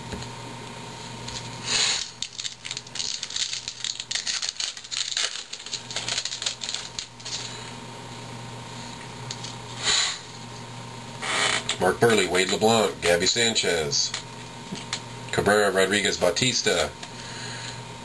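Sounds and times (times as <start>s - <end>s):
wrapper and cards crinkling: 1.3s - 7.7s
wrapper ripping: 1.3s - 7.7s.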